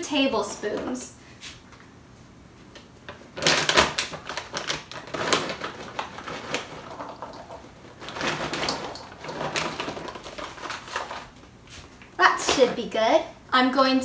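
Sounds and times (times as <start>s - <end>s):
plastic bag crinkling: 3.2s - 11.4s.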